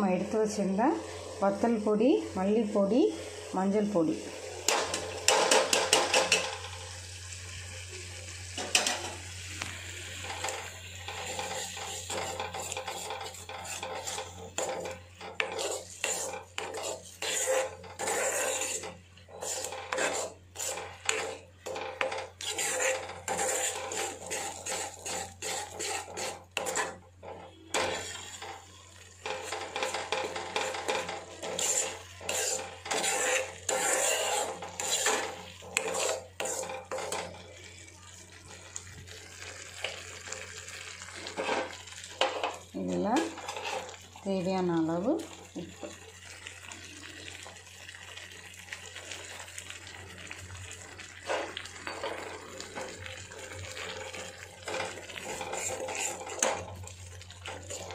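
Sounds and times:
metal ladle scraping iron pan: 4.6 - 6.7, 8.6 - 9.2, 10.2 - 37.4, 41.2 - 44.0, 50.8 - 57.9.

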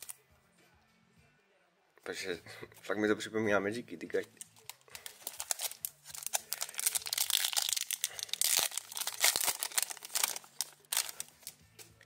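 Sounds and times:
foil wrapper crinkling: 4.4 - 11.6.

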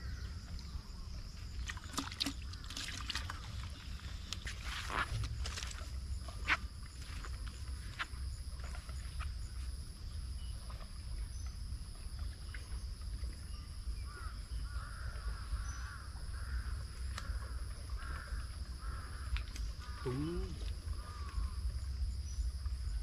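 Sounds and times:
bird calling: 13.5 - 21.6.

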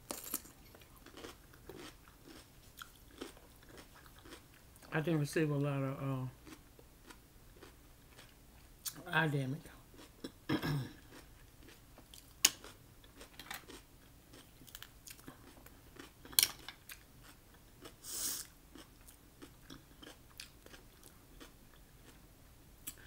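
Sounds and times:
wet chewing: 0.7 - 4.9
short hiss: 18.0 - 18.4.

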